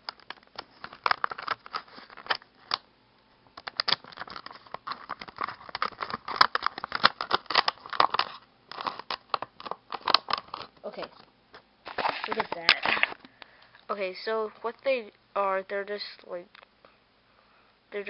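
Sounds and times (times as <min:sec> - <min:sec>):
packaging crackling and crinkling: 0:00.0 - 0:02.8, 0:03.6 - 0:11.2, 0:11.9 - 0:13.3.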